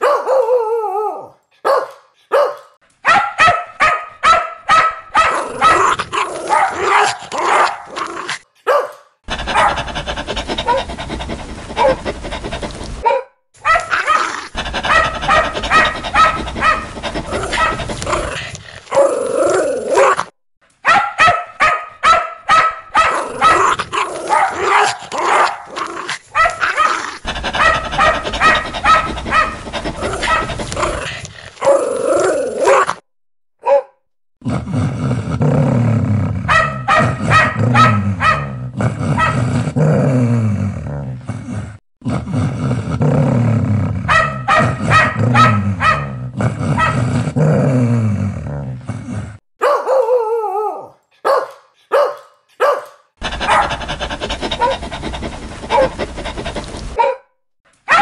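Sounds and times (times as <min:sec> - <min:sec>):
dogs barking loudly: 0:00.0 - 0:00.5, 0:01.6 - 0:33.0, 0:36.5 - 0:39.8, 0:44.0 - 0:47.4, 0:49.6 - 0:50.2, 0:51.1 - 0:57.2.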